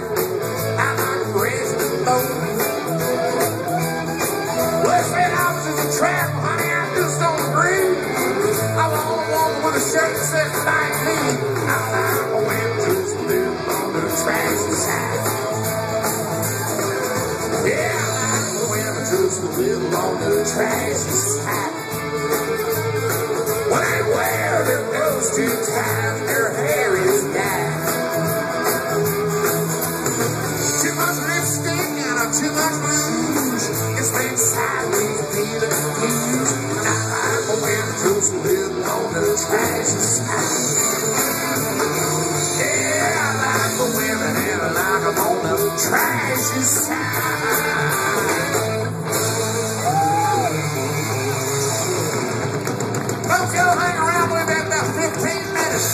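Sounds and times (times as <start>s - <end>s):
live country-rock band: 0.0s - 55.9s
person singing: 0.6s - 15.7s, 16.7s - 28.4s, 30.5s - 41.3s, 42.3s - 49.0s.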